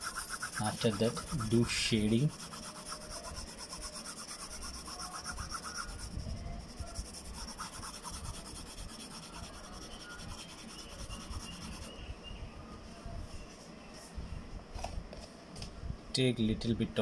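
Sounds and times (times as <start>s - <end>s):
pencil shading on paper: 0.0s - 11.9s.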